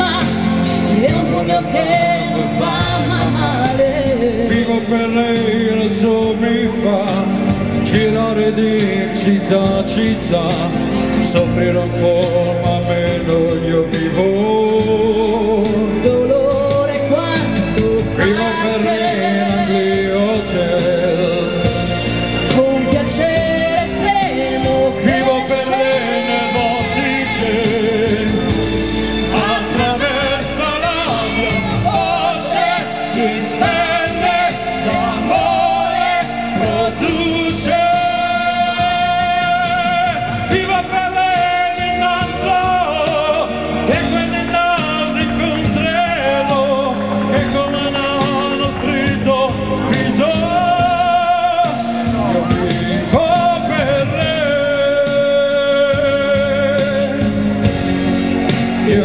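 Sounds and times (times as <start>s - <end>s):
woman singing: 0.0s - 5.1s
live band music: 0.0s - 59.0s.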